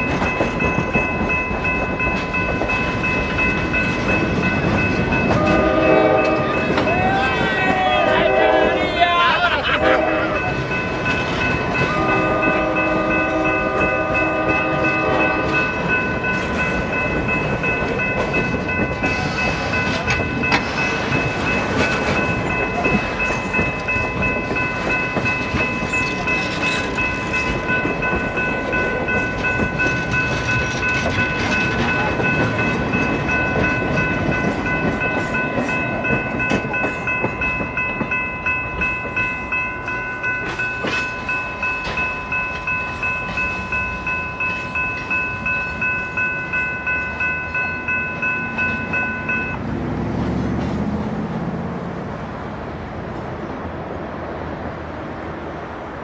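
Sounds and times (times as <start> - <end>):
train cars clattering over rails: 0.0 - 53.3
train horn: 5.3 - 10.6, 11.8 - 15.6
high-pitched ringing tone: 10.4 - 49.6.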